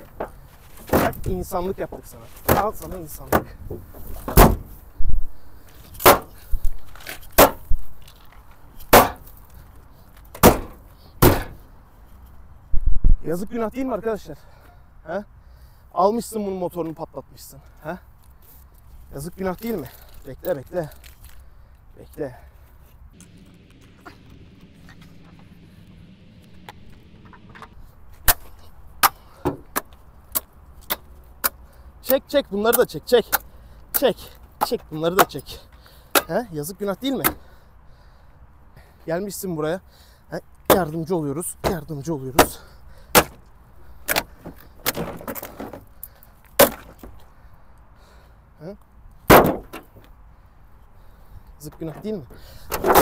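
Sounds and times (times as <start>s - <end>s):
hammer blows on car body: 10.4s - 11.6s.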